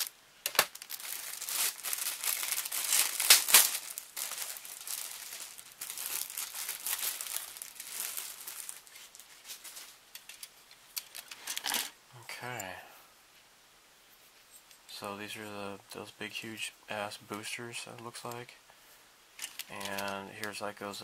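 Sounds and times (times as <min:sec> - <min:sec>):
plastic bag crinkling: 0:00.0 - 0:11.6, 0:19.4 - 0:20.2.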